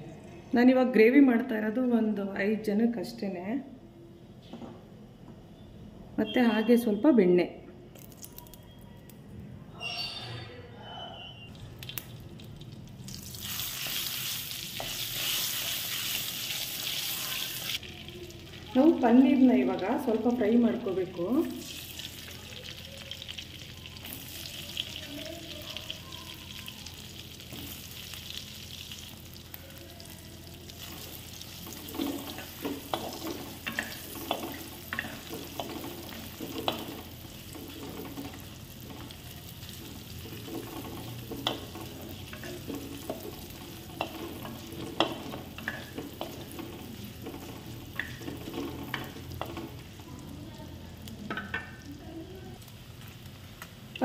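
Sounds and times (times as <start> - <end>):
cheese cubes sizzling in butter: 11.8 - 20.7, 21.4 - 54.0.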